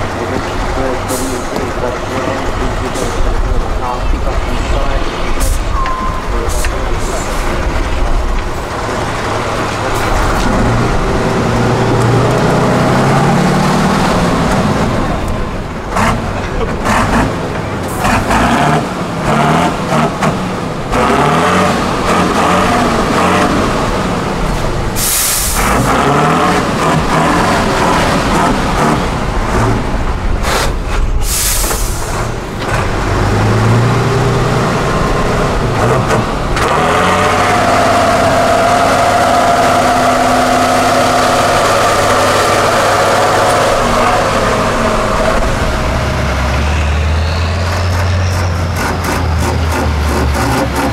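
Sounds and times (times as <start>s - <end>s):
knocks and clunks: 0.0s - 21.1s, 26.6s - 34.2s, 34.9s - 36.9s
diesel truck engine revving: 0.0s - 50.9s
air hiss bursts: 25.0s - 25.8s, 30.4s - 32.2s.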